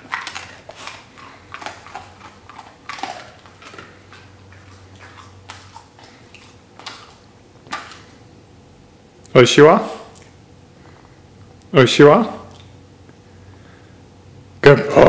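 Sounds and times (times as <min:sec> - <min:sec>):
dog licking its lips: 0:00.0 - 0:08.1
faint low hum: 0:00.0 - 0:15.0.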